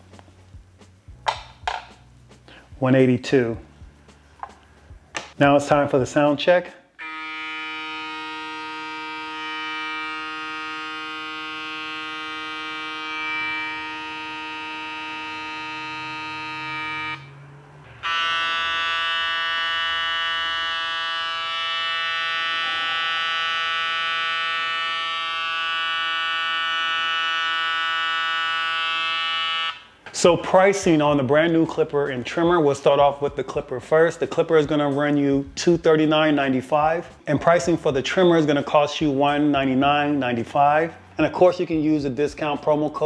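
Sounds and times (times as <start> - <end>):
hair clipper humming: 7.0 - 17.3, 17.9 - 26.3
trimmer humming: 7.0 - 29.1.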